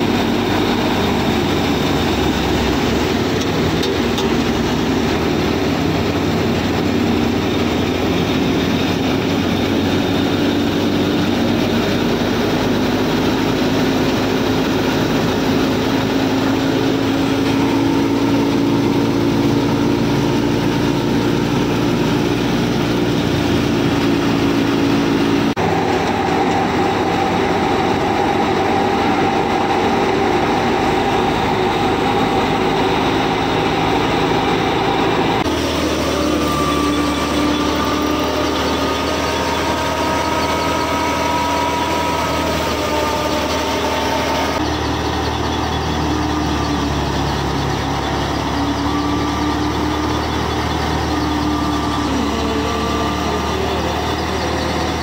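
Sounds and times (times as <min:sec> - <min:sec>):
thresher machine whirring and rattling: 0:00.0 - 0:55.0.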